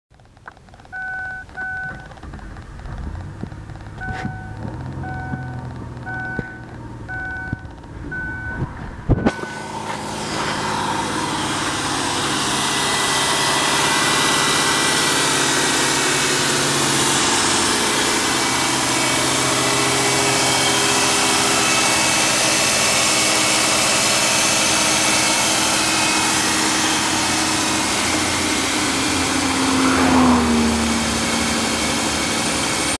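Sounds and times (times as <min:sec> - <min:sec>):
car engine running: 0:00.1 - 0:32.9
brief falling tone: 0:04.0 - 0:11.1.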